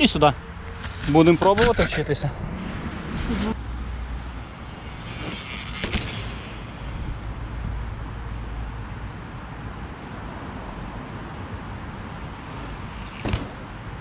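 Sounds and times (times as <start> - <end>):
wind and tyre rumble: 0.0 - 14.0
sharp bike knocks: 5.2 - 6.6, 13.0 - 14.0.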